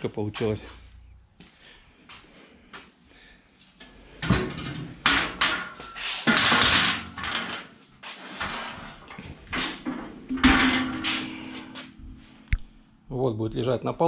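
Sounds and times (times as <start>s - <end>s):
scraping rustles: 4.1s - 12.4s.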